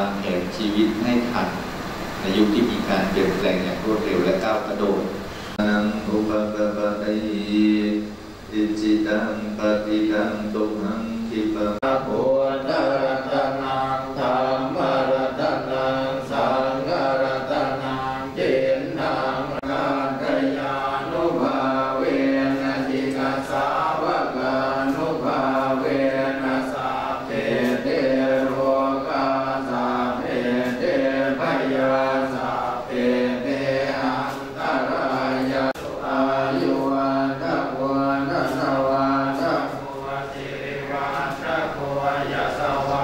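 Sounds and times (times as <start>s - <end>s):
monks chanting in unison: 2.2s - 43.0s.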